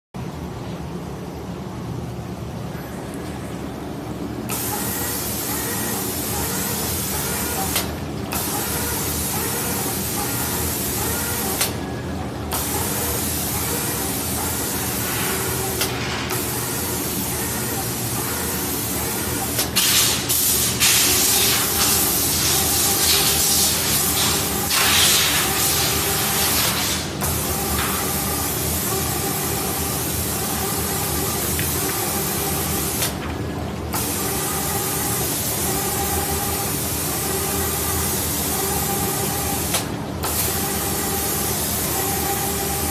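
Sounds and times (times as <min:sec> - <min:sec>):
spray gun hissing: 0:12.6 - 0:27.1.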